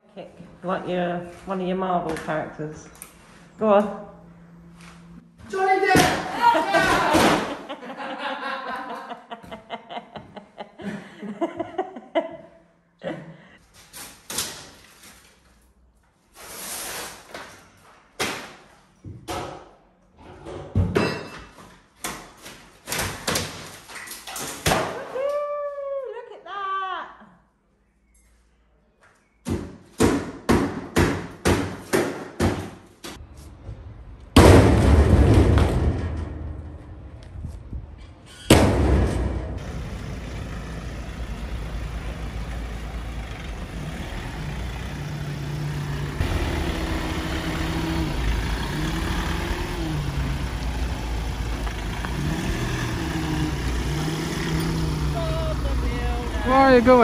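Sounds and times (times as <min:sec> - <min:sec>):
person chuckling: 0:06.4 - 0:13.6
debris crashing into metal trailer: 0:34.4 - 0:36.6.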